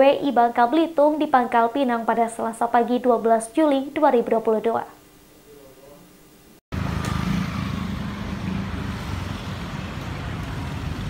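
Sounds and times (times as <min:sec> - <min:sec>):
street traffic: 0:06.7 - 0:11.0
motorcycles riding past: 0:06.8 - 0:11.0.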